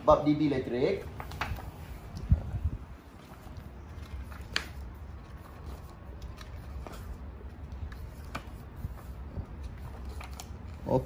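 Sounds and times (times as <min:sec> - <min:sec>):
book pages rustling: 0:00.8 - 0:11.0
page flicks: 0:01.1 - 0:02.3, 0:03.4 - 0:04.9.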